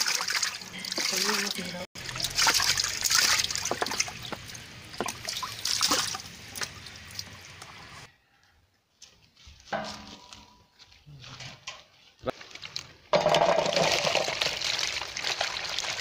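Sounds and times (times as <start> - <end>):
water pouring into metal pot: 0.0 - 7.2, 13.2 - 16.0
water splashing: 0.0 - 8.1, 13.2 - 16.0.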